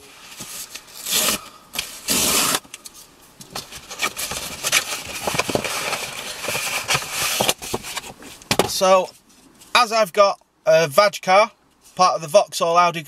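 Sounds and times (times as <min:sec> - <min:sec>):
cardboard tearing: 0:01.0 - 0:02.7
packaging crackling rustle: 0:02.8 - 0:08.5.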